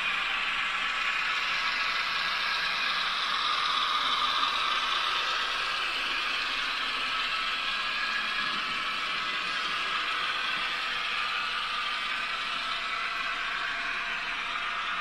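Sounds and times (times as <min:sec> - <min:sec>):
model train motors whirring: 0:00.0 - 0:15.0
wheels running on rails: 0:00.1 - 0:15.0.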